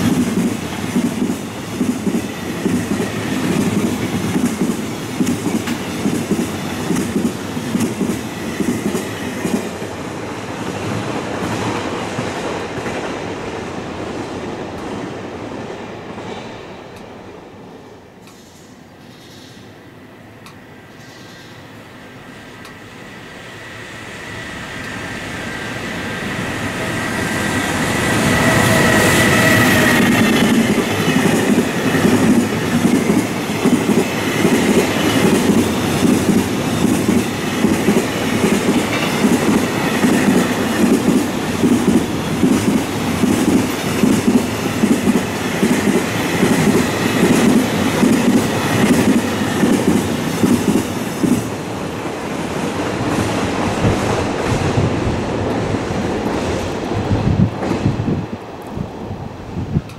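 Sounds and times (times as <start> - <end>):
train wheels clickety-clack: 0.0 - 13.5, 26.6 - 51.7, 52.4 - 58.8
locomotive high whine: 19.9 - 52.3.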